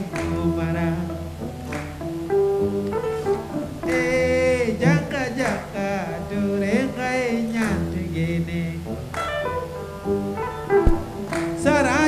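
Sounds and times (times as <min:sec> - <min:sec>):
electric guitar phrases: 0:00.0 - 0:12.0
sharp click: 0:10.8 - 0:11.6.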